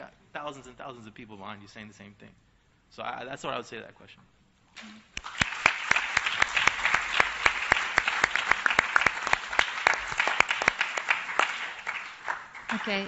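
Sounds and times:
loud close claps: 4.8 - 13.0
audience applause: 5.2 - 13.0.

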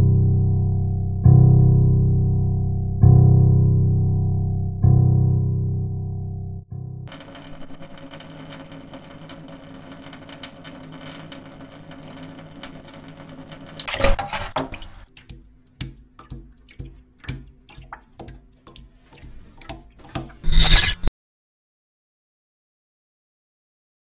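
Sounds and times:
low hum: 0.0 - 7.9
running water noise: 7.1 - 21.1.

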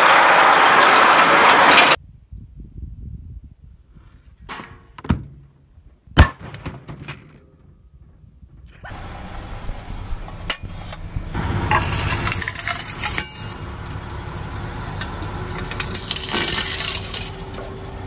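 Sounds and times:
metal lid clinking and crunching: 11.7 - 18.0.

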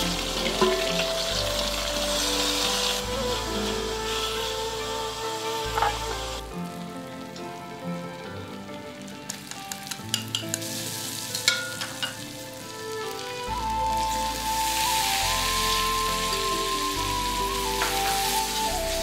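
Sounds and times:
oil sizzling in a wok: 0.0 - 7.5, 8.4 - 19.0.

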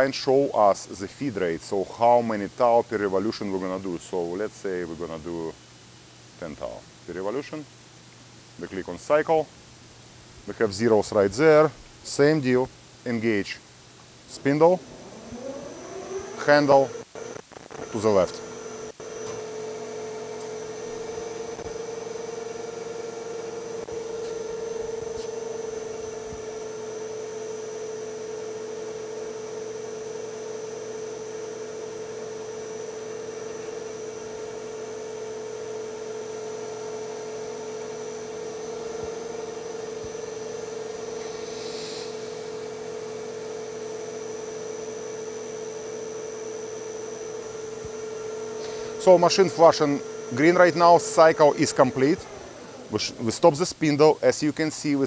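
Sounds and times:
metal lathe humming: 14.4 - 54.0
brief hiss: 41.1 - 42.4.

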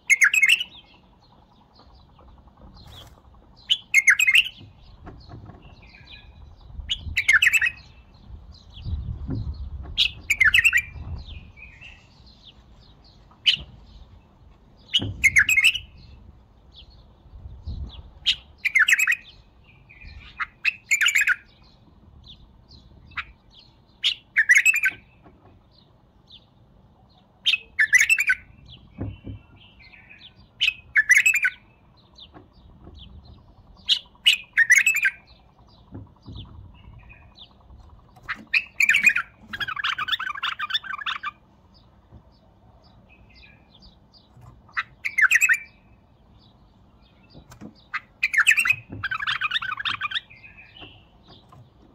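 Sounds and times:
bird rapid chattering: 0.0 - 14.1, 14.8 - 26.6, 27.4 - 51.9
bird whistled phrases: 15.0 - 15.9, 27.5 - 28.5, 45.0 - 45.8.

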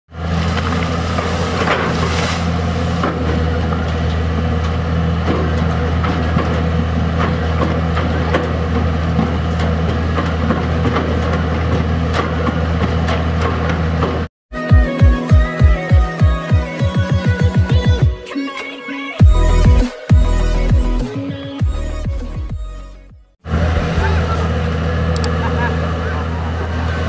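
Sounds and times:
excavator diesel engine running: 0.1 - 14.3, 21.7 - 27.0.

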